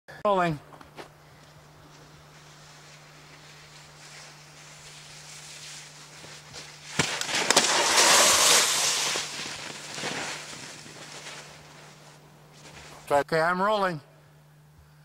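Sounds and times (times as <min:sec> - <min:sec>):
skis scraping over crusty snow: 0:02.3 - 0:13.1.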